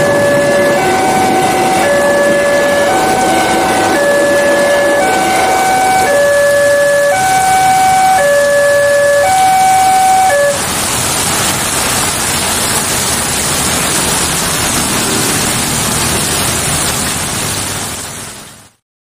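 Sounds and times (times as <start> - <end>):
level-crossing alarm two tones: 0.0 - 10.6
heavy rain hissing: 0.0 - 18.8.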